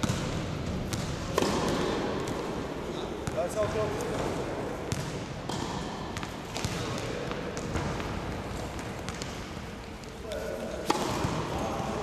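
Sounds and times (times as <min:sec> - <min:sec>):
tennis ball hitting rackets and floor: 0:00.0 - 0:02.6, 0:04.1 - 0:09.7, 0:10.7 - 0:11.8.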